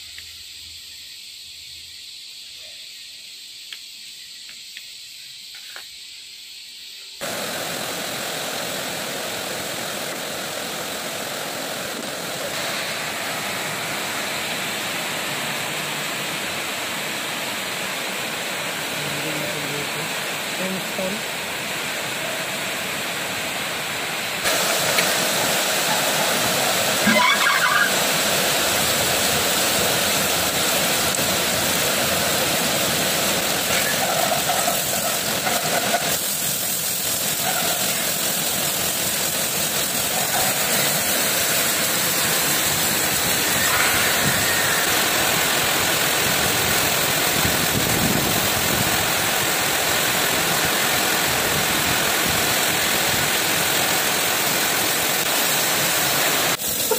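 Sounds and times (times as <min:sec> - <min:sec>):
coolant pouring and spraying: 0:07.2 - 0:56.9
grinding wheel hissing on metal: 0:28.6 - 0:46.3.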